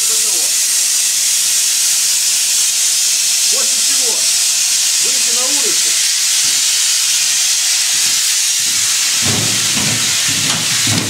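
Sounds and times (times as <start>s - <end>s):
locomotive equipment hissing: 0.0s - 11.0s
low knocks and rumbles: 8.6s - 11.0s.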